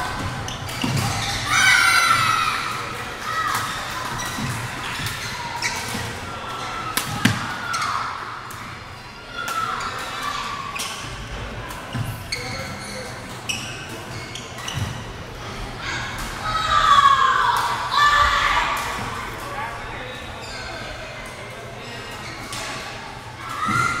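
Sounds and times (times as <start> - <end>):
spectators chattering: 0.0 - 24.0
sneakers squeaking on court: 10.8 - 15.1.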